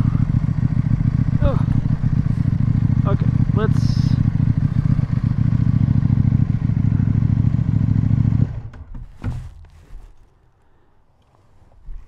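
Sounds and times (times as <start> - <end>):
motorcycle engine running: 0.0 - 9.0.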